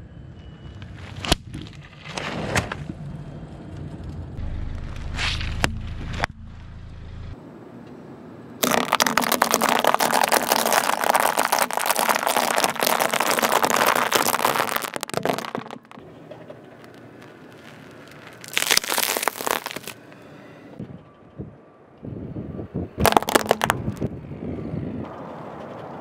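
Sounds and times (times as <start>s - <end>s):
dry pasta crunching under tyre: 8.6s - 16.0s, 16.8s - 20.0s, 23.0s - 24.1s.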